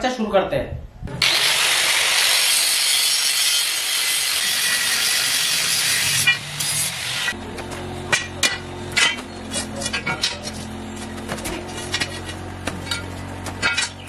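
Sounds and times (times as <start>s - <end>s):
angle grinder cutting steel: 1.1s - 11.0s.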